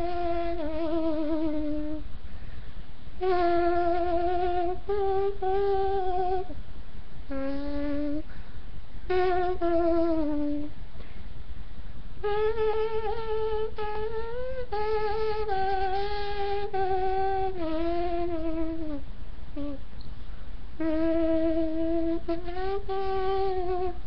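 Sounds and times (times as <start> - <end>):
slow trumpet-like tune: 0.0 - 2.0, 3.2 - 6.6, 7.3 - 8.4, 9.1 - 10.7, 12.2 - 19.9, 20.8 - 24.0.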